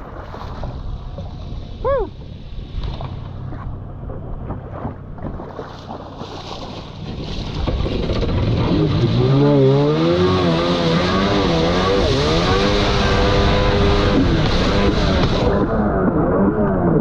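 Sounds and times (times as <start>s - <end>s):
jet ski engine revving: 7.0s - 17.0s.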